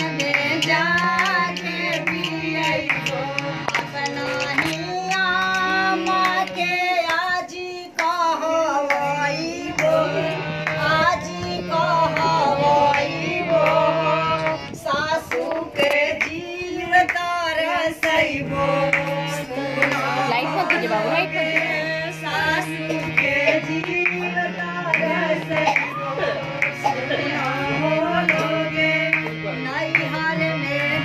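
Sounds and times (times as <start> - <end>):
sharp percussive strikes: 0.0 - 3.4, 25.4 - 26.0
women singing folk song: 0.0 - 31.0.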